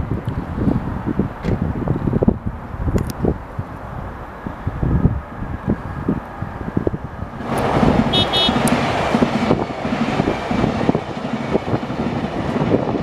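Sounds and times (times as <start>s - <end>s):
electric train passing: 0.0s - 13.0s
wind rumbling on microphone: 0.0s - 13.0s
short high train toots: 8.1s - 8.7s.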